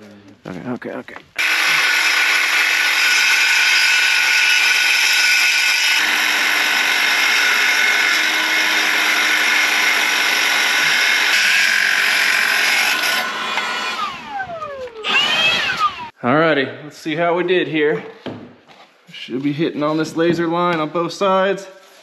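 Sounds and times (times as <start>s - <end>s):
leaf blower running: 1.4s - 5.2s, 5.8s - 16.2s
circular saw cutting wood: 1.4s - 16.2s.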